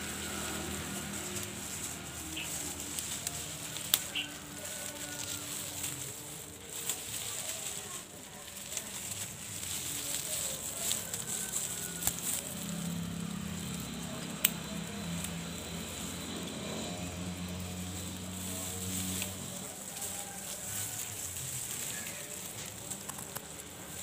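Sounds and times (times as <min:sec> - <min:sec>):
leaves and twigs rustling: 0:00.0 - 0:24.0
twig snapping: 0:01.2 - 0:06.0, 0:09.8 - 0:13.0, 0:13.7 - 0:15.4.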